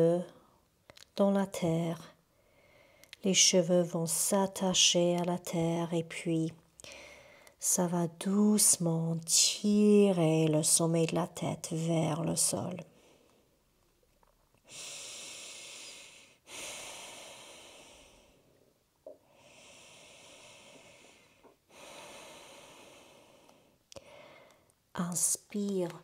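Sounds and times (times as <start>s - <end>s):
woman breathing softly: 2.3s - 3.2s, 6.8s - 7.6s, 14.6s - 18.6s, 19.2s - 24.8s.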